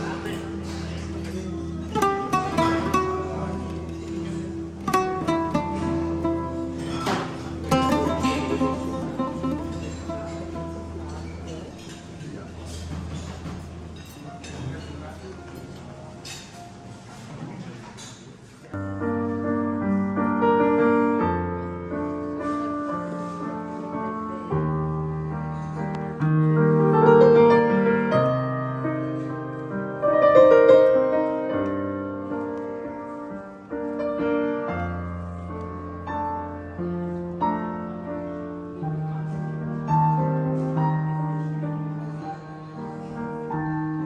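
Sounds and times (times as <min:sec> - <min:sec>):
slow piano chords: 0:00.0 - 0:17.5, 0:18.7 - 0:44.0.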